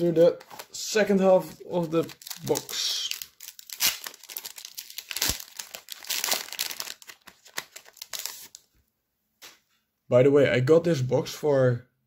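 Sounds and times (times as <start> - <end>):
foil wrapper crinkling: 1.7 - 8.7.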